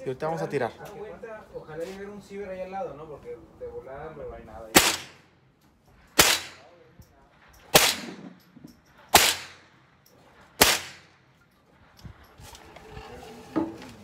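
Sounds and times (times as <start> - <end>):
rifle shots echoing: 4.7 - 5.4, 6.1 - 11.3.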